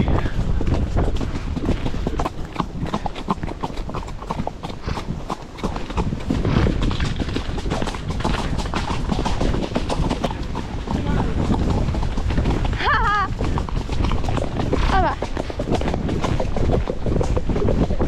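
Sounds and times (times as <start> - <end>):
horse hoofbeats: 0.0 - 18.0.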